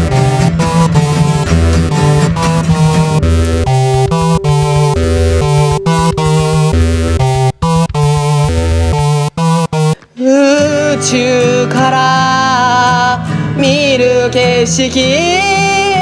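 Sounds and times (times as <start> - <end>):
deep bass: 0.0 - 10.0
stuttering synthesizer chords: 0.0 - 10.0.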